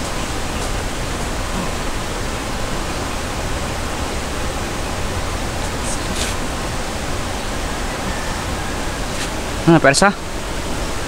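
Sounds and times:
rushing river water: 0.0s - 11.0s.

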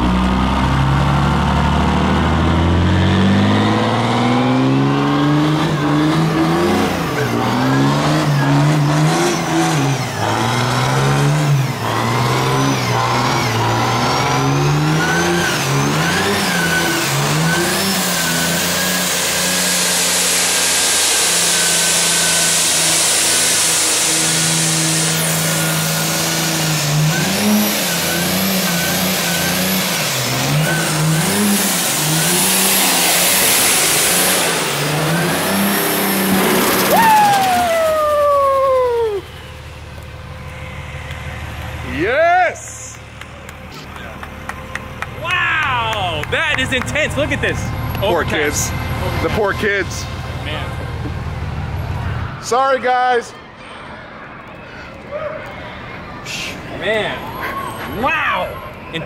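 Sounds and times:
diesel engine revving hard: 0.0s - 52.5s
high tyre hiss: 16.5s - 37.3s
tyres spinning on pavement: 20.1s - 42.2s.

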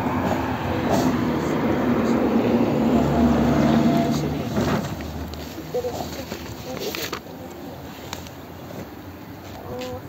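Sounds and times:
vehicle engine passing: 0.0s - 6.3s.

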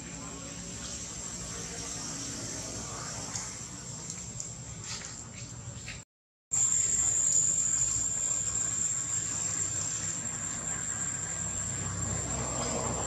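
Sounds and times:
high-pitched insect drone: 6.6s - 13.0s.

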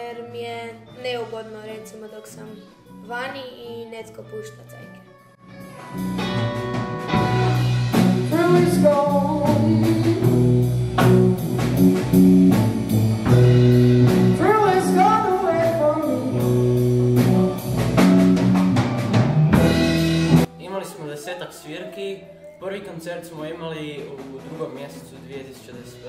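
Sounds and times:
rock band playing: 5.4s - 20.5s
drum beat: 5.9s - 20.5s
person singing: 7.9s - 10.7s, 14.3s - 16.6s.

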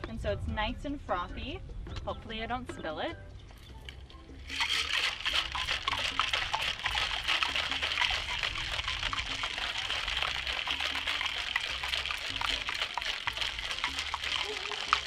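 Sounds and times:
ice rattling in cocktail shaker: 4.4s - 15.0s.

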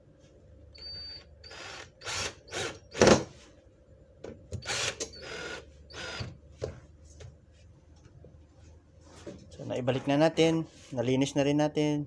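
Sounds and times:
cordless drill driving screws: 0.8s - 3.2s, 4.6s - 6.3s.

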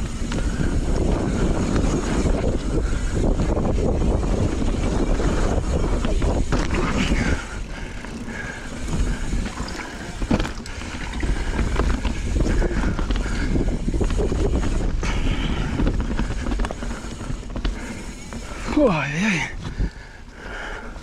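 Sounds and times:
bike tyre noise: 0.0s - 21.0s
wind buffeting microphone: 0.0s - 21.0s.

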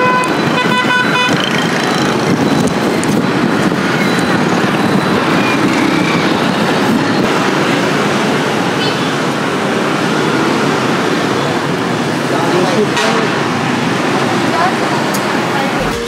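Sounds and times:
vehicle horn toot: 0.0s - 1.4s
dense street traffic: 0.0s - 16.0s.

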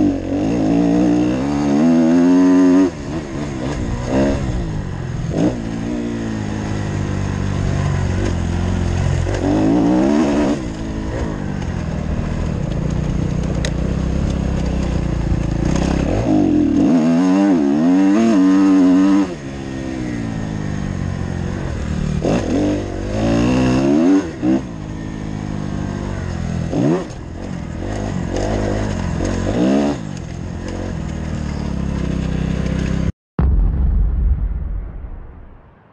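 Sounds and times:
motocross engine revving: 0.0s - 12.4s, 13.8s - 20.7s.

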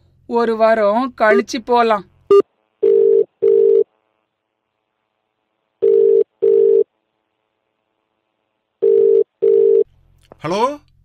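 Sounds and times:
telephone ringback tone: 2.8s - 3.8s, 5.8s - 6.8s, 8.8s - 9.8s.

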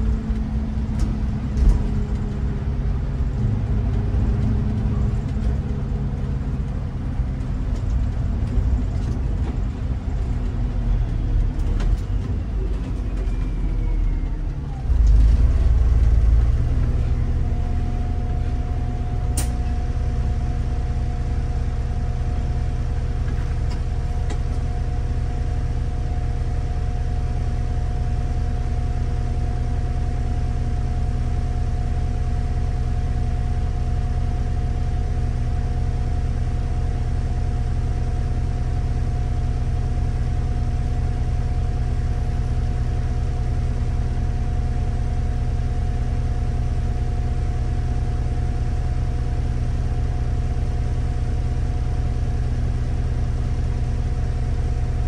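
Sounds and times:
bus engine low hum: 0.0s - 55.0s
sharp click: 19.3s - 19.6s.

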